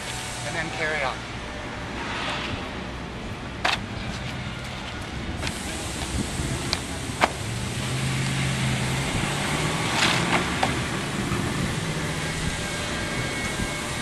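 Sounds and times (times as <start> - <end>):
vehicle engine humming: 0.0 - 14.0
wind noise on microphone: 1.3 - 14.0
brief rush of noise: 1.9 - 2.9.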